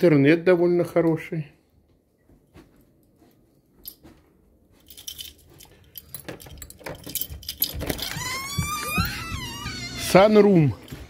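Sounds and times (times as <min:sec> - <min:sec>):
door knob and latch rattling: 0:06.0 - 0:10.1.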